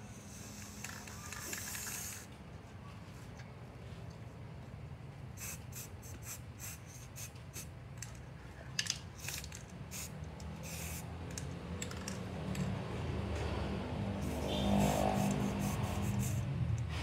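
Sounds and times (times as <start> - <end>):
spray can bursts: 0.2 - 2.3, 5.4 - 7.7, 9.2 - 11.1, 14.2 - 16.5.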